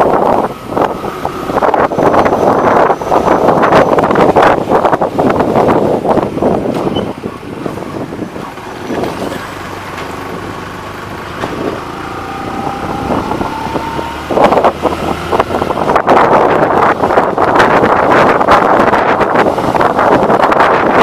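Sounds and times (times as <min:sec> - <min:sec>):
bus passing: 0:00.0 - 0:21.0
wind buffeting microphone: 0:00.0 - 0:21.0
motorcycle engine running: 0:07.9 - 0:17.8.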